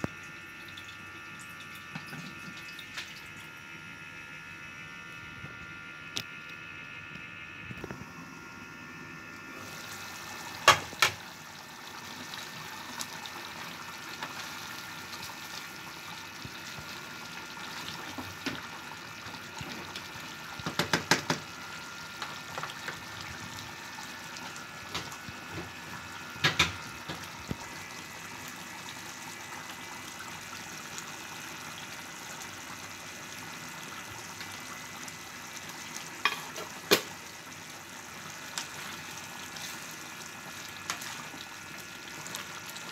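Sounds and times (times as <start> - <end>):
curry bubbling in a pan: 9.7 - 42.9.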